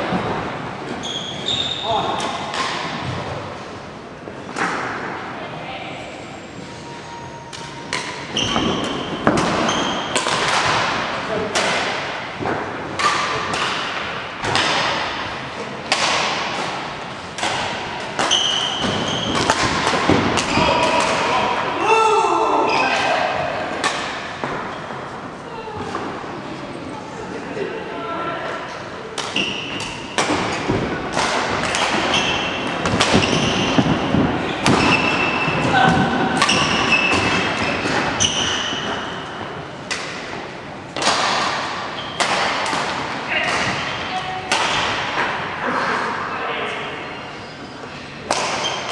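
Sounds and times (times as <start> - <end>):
sharp echoing knocks: 8.0 - 21.7
sharp knocks with long echo: 17.4 - 21.3.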